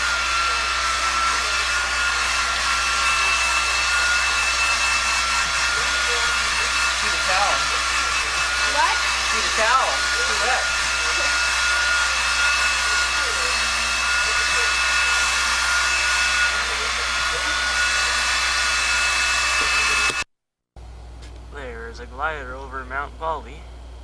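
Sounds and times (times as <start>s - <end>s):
hair dryer blowing: 0.0s - 20.3s.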